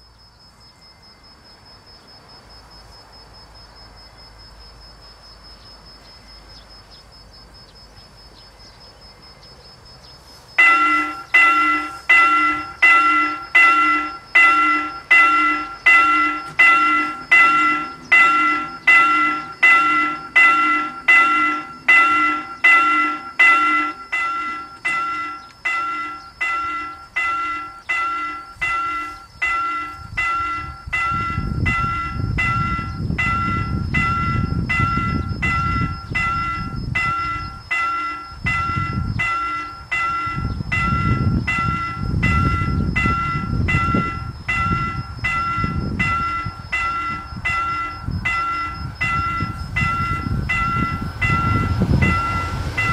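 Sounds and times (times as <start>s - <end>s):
low rumble of train: 0.0s - 52.9s
level crossing warning bell: 10.6s - 52.9s.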